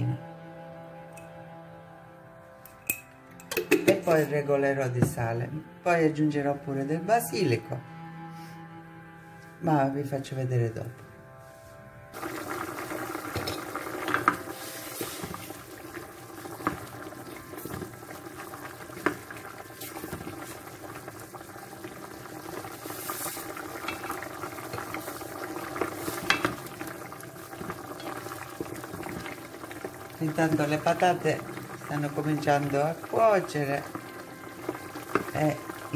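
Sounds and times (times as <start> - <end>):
broth simmering in pot: 12.1 - 35.9.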